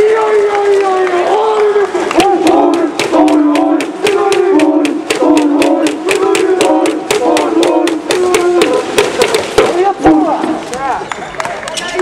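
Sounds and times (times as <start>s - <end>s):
crowd chanting a cheer: 1.2s - 10.6s
fast sharp claps: 1.8s - 9.8s.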